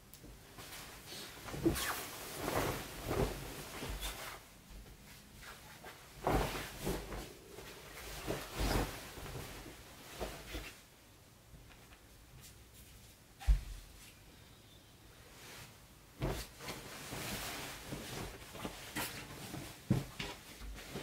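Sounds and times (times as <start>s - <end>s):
bedding rustling: 0.2s - 11.1s, 15.2s - 21.0s.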